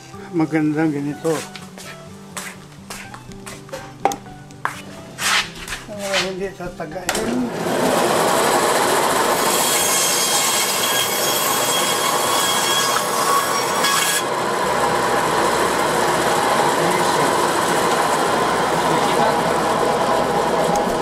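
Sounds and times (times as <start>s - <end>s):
band saw cutting bone: 7.1s - 21.0s.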